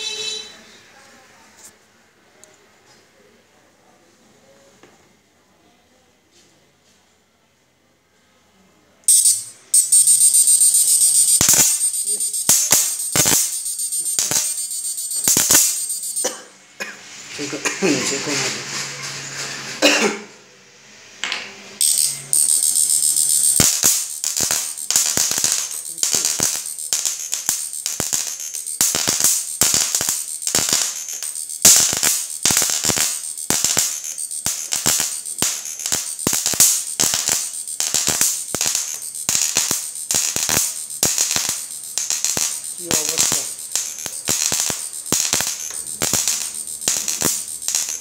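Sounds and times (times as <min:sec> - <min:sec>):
electric arc crackling: 0:09.1 - 0:16.4, 0:21.8 - 0:48.0.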